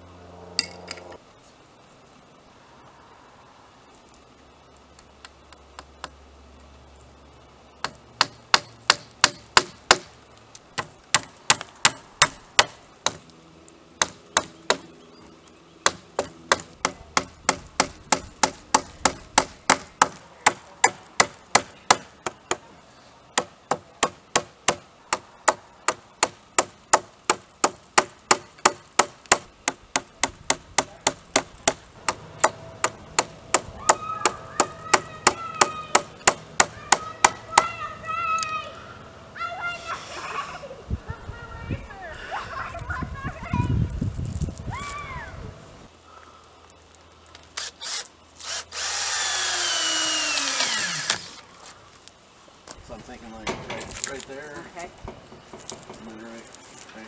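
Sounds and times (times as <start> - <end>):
hammering on wood: 7.8 - 10.1, 10.8 - 13.2, 14.0 - 14.9, 15.8 - 22.7, 23.4 - 37.8.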